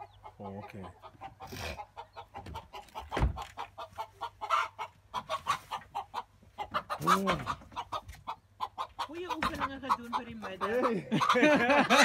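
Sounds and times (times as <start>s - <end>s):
chickens clucking and squawking: 0.0s - 12.0s
low thump: 3.2s - 3.4s.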